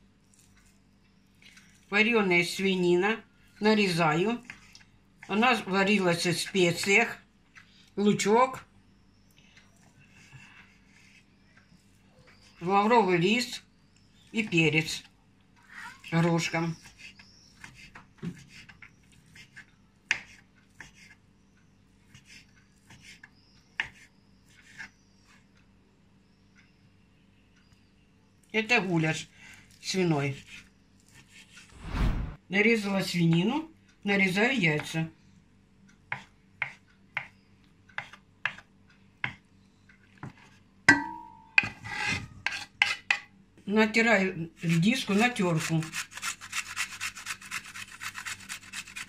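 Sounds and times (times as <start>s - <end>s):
knock ringing against enamel pot: 40.9s - 41.7s
knife scraping board: 41.8s - 43.0s.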